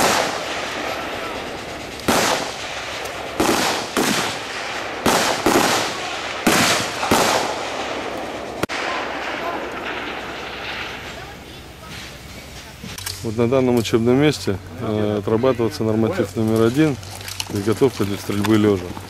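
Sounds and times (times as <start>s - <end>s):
rifle shots echoing: 0.0s - 11.8s.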